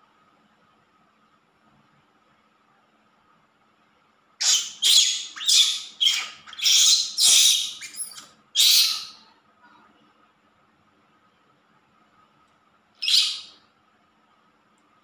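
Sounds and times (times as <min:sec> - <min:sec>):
baby monkey squealing: 0:04.4 - 0:09.2, 0:13.0 - 0:13.6.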